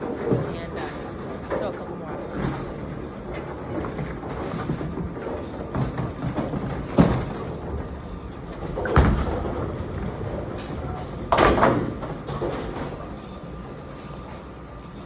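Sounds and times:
bowling alley rumble: 0:00.0 - 0:15.0
bowling ball thud on wooden lane: 0:08.6 - 0:09.8.

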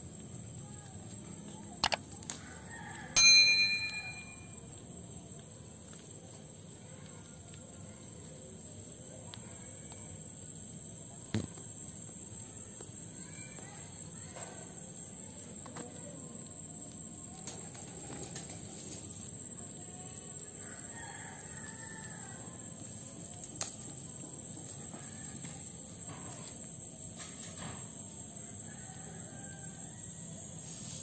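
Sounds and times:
high insect-like whine: 0:00.0 - 0:31.0
quick clicks: 0:01.8 - 0:02.4
bright ding: 0:03.2 - 0:04.6.

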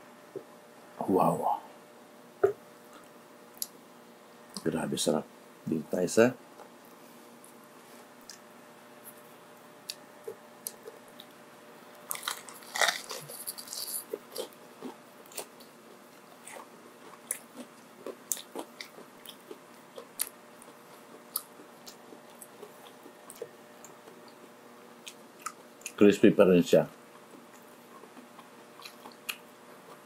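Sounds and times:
person chewing crunchily: 0:12.0 - 0:24.4, 0:25.0 - 0:26.0, 0:27.1 - 0:30.0
crunching bite into crispy food: 0:12.1 - 0:14.5.

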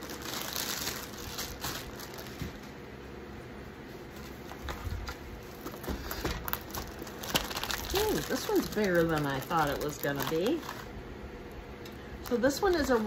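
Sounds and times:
plastic sleeve crinkling: 0:00.0 - 0:02.8, 0:04.2 - 0:11.0, 0:12.1 - 0:13.0.

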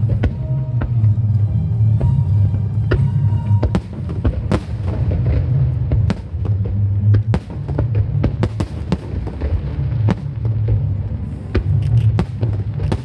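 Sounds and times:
deep low rumble: 0:00.0 - 0:13.0
fireworks cracking: 0:02.9 - 0:13.0.

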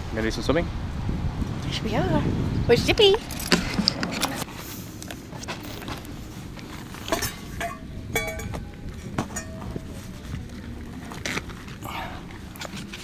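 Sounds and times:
steady low rumble: 0:00.1 - 0:13.0
metal tent stakes clinking: 0:03.2 - 0:13.0.

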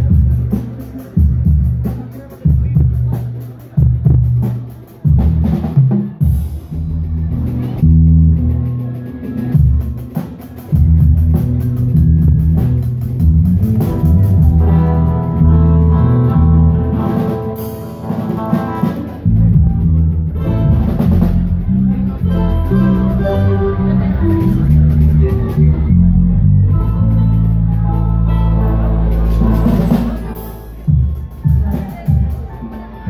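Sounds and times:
bass: 0:00.0 - 0:33.0
drum kit: 0:00.0 - 0:33.0
guitars: 0:06.9 - 0:33.0.

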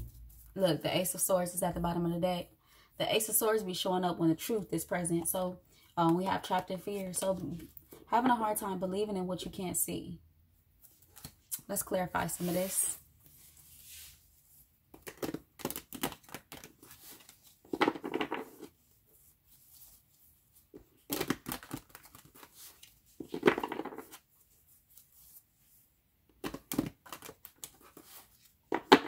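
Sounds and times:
cards being shuffled: 0:14.9 - 0:18.8, 0:20.7 - 0:24.3, 0:26.4 - 0:29.0.

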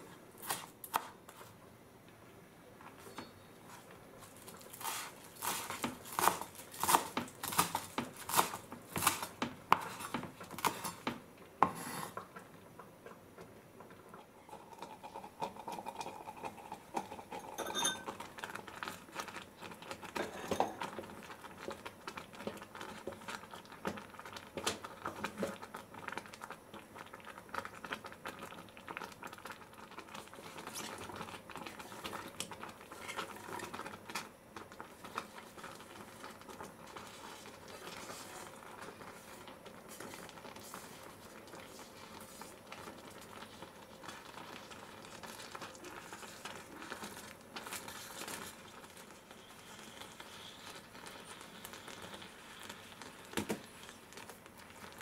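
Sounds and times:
spatula stirring in clay pot: 0:03.1 - 0:12.3, 0:34.8 - 0:55.0.

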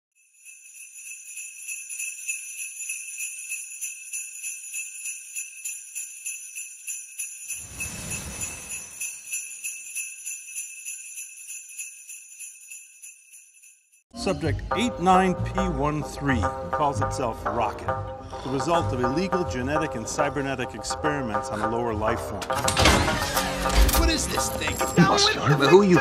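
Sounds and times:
jingle bells shaking: 0:00.2 - 0:14.1, 0:23.4 - 0:26.0.

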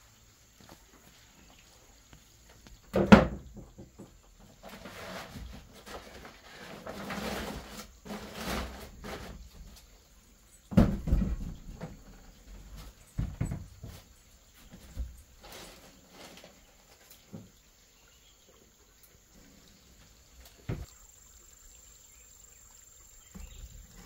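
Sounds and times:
heavy knocks on wooden floorboards: 0:10.7 - 0:11.8.

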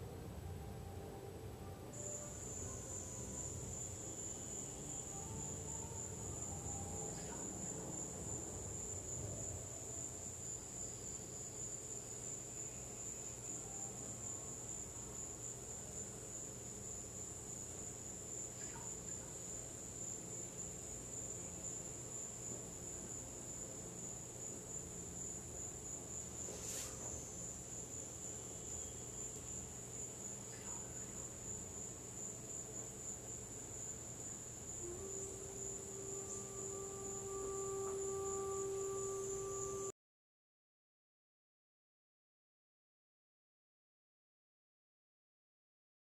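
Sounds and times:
high-pitched whine: 0:00.0 - 0:11.6, 0:34.7 - 0:40.0
faint low hum: 0:00.0 - 0:39.9.

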